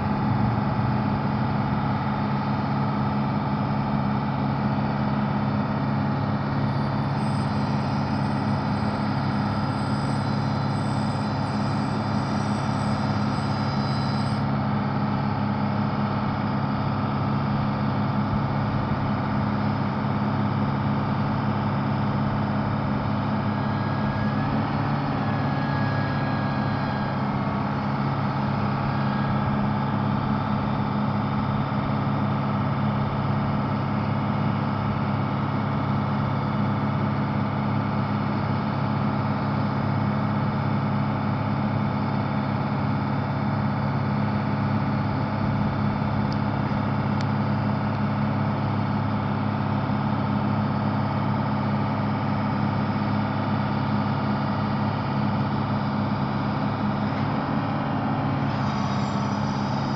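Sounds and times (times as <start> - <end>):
diesel engine idling: 0.0 - 59.9
faint high whine: 5.8 - 15.8, 22.0 - 31.6, 55.5 - 59.9.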